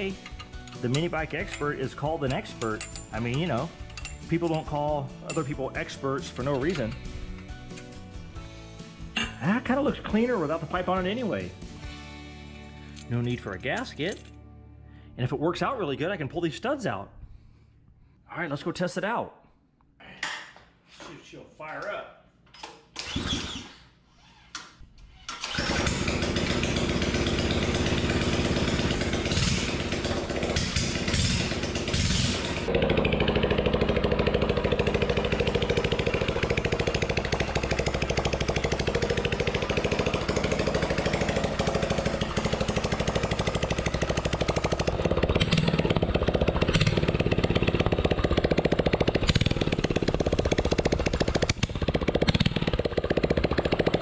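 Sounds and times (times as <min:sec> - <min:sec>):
recoil starter pull: 0:00.0 - 0:08.0, 0:24.5 - 0:54.0
small engine running loudly: 0:25.5 - 0:54.0.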